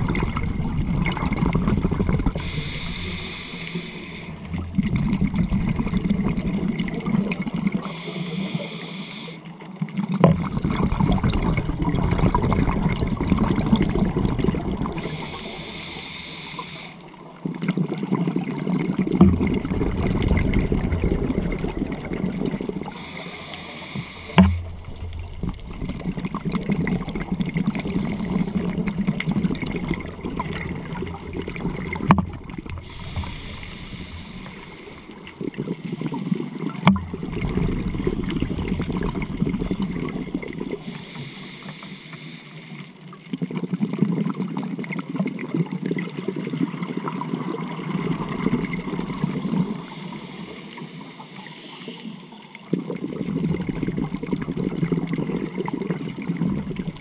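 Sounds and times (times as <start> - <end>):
exhaled bubbles burbling: 0.0 - 8.0, 9.7 - 15.7, 17.2 - 40.9, 43.2 - 49.9, 52.6 - 57.0
regulator inhale hiss: 2.3 - 4.6, 7.8 - 9.6, 15.0 - 17.2, 22.8 - 24.9, 32.7 - 36.6, 40.8 - 43.0, 49.7 - 52.6.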